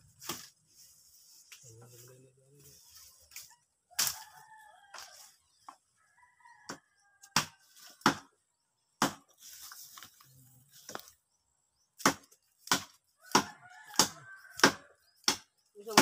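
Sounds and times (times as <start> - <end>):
vegetation rustling: 0.0 - 5.4, 9.3 - 11.2
blade chopping wood: 9.0 - 9.3, 12.0 - 16.0.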